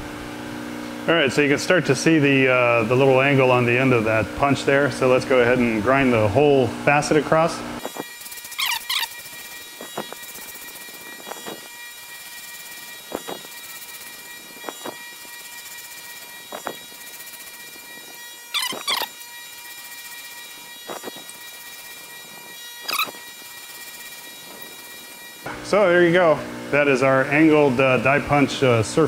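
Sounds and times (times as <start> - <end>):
grinding wheel whining: 2.2 - 27.7
grinding wheel screeching on metal: 7.8 - 25.5.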